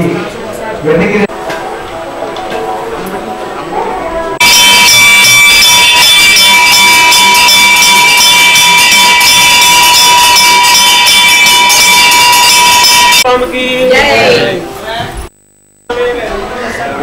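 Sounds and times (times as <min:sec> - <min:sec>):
temple bells ringing rapidly: 0:04.4 - 0:13.3.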